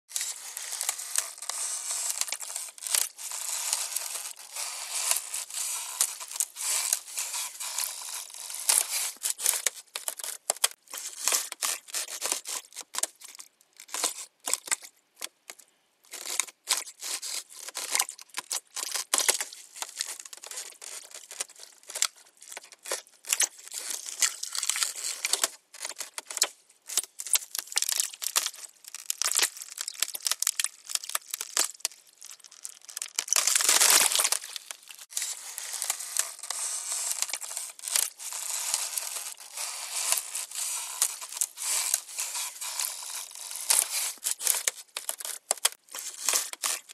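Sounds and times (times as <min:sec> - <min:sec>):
ice creaking and crackling: 0:00.1 - 0:46.9.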